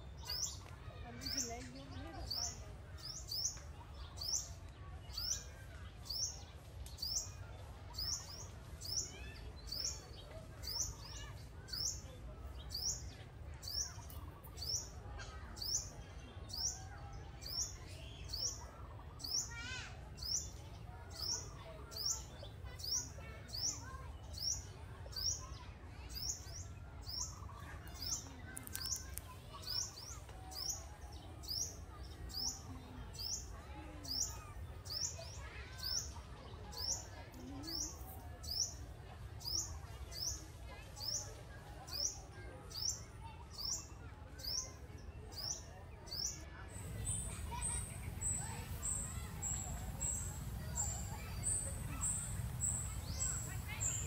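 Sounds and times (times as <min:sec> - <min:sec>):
bird chirping: 0:46.7 - 0:54.0.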